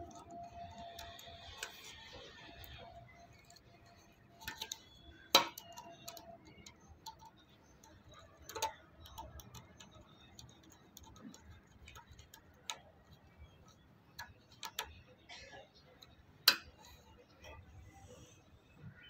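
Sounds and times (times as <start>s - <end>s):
screwdriver clicking on plastic: 0.0s - 15.1s.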